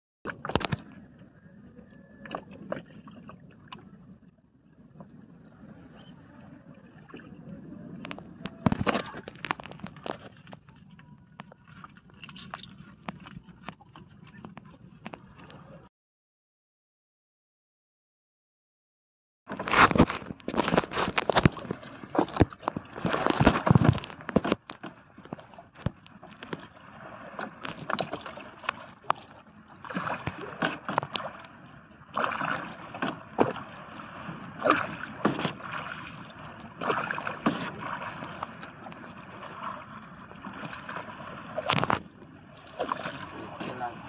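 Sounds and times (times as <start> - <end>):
water sloshing around boat: 0.3 - 15.9, 19.5 - 44.0.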